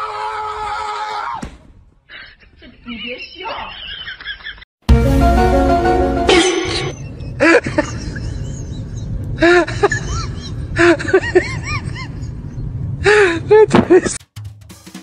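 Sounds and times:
short musical notes: 4.9s - 7.0s.

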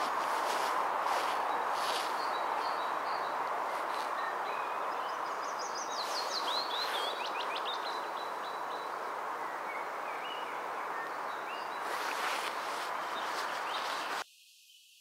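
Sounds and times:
soft bird call notes: 0.0s - 8.7s, 9.5s - 14.2s
bird singing high sweeping notes: 0.0s - 15.0s
steady background hiss: 0.0s - 15.0s.

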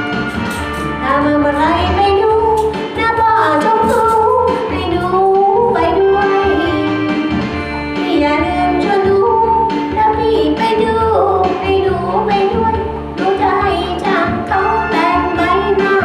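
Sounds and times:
backing track music: 0.0s - 16.0s
woman singing into microphone: 1.0s - 16.0s.

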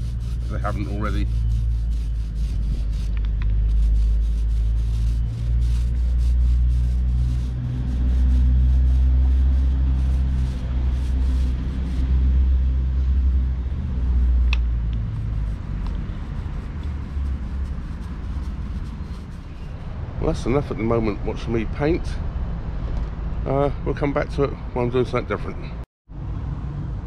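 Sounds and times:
paint roller rasping on steel: 0.0s - 12.2s, 15.1s - 19.8s
loud low rumble: 0.0s - 23.6s.

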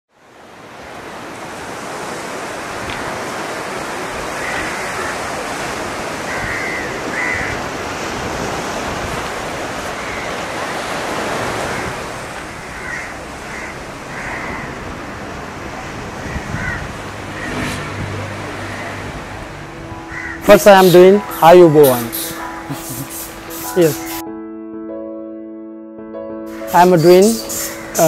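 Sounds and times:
sea waves rushing: 0.1s - 24.2s, 26.5s - 28.0s
short bird calls: 27.0s - 28.0s.

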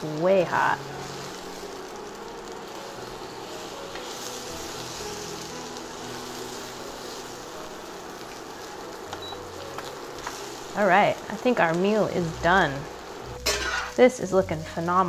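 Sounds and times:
food sizzling in a skillet: 0.0s - 15.0s
spatula stirring food: 2.6s - 11.3s.

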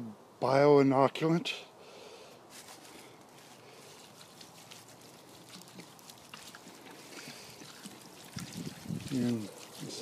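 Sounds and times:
liquid pattering onto pieces: 3.9s - 10.0s.

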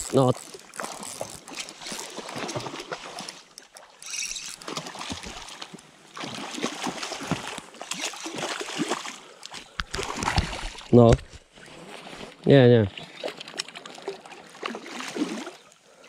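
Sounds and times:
fish splashing in stream: 0.0s - 10.9s, 13.0s - 15.6s.

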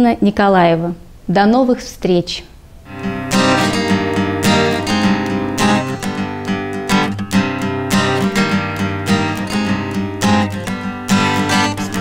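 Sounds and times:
acoustic guitar strumming chords: 2.9s - 12.0s.

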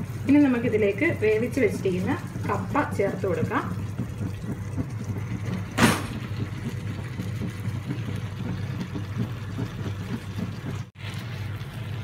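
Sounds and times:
food thumping into pan: 5.7s - 6.4s.

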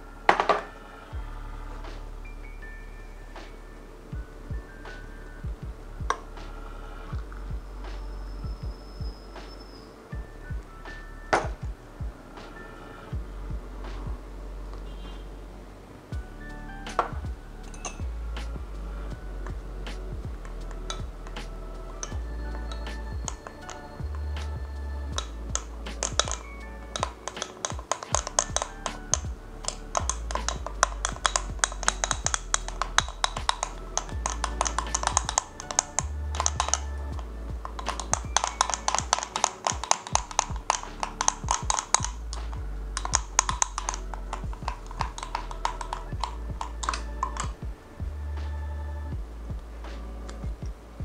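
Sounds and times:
background music: 0.0s - 51.0s
spoon clinking against glass jug: 17.7s - 18.0s.

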